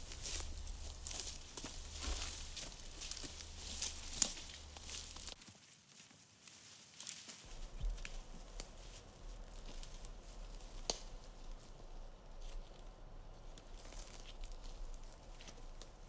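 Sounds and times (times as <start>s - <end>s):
footsteps through leaf litter: 0.0s - 11.6s
twigs snapping: 0.1s - 5.4s, 10.5s - 11.3s.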